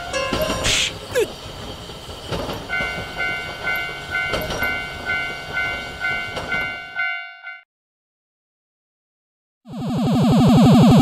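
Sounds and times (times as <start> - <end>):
train wheels knocking on rail joints: 0.0 - 6.9
freight train passing: 0.0 - 7.1
railroad crossing bell ringing: 0.0 - 7.6.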